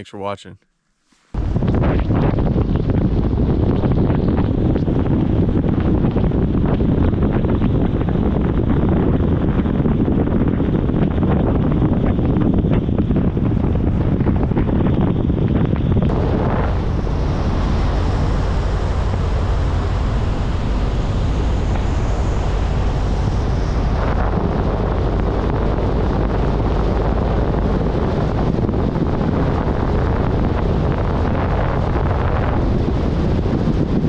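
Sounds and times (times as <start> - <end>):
wind buffeting microphone: 1.3 - 34.0
engine and road noise: 12.6 - 33.9.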